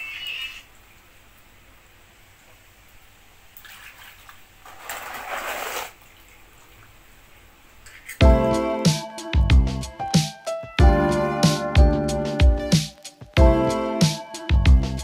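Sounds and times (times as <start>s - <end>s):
water splashing in a plastic basin: 3.5s - 7.0s.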